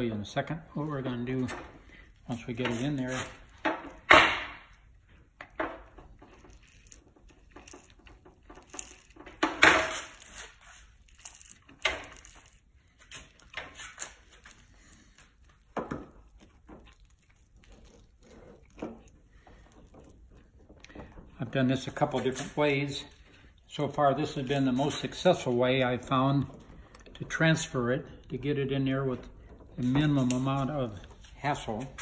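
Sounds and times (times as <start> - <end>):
rustling: 6.0 - 25.6.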